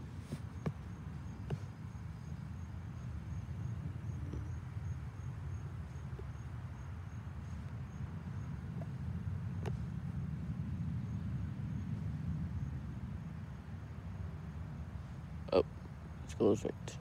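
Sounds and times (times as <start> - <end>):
soft knocks: 0.3 - 1.8, 9.6 - 9.9.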